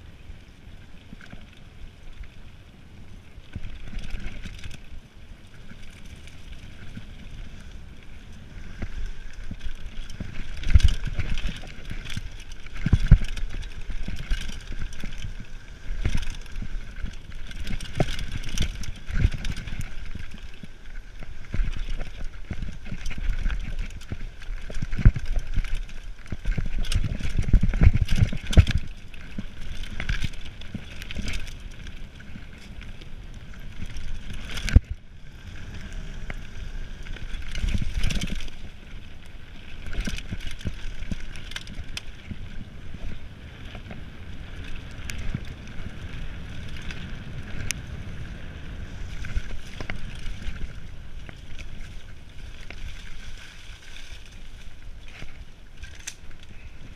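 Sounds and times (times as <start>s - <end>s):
bike tyres rumbling on dirt: 0.0s - 56.9s
bike knocking and clattering: 8.9s - 20.6s, 21.2s - 32.0s.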